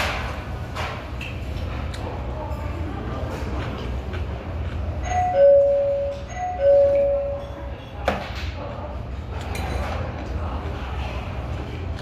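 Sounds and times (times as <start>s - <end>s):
two-note ding-dong chime: 5.0s - 7.6s.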